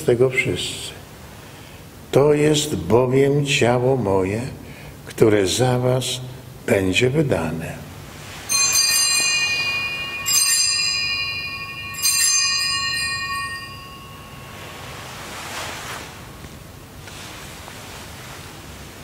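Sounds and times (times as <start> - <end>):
altar bells ringing: 8.4 - 15.6.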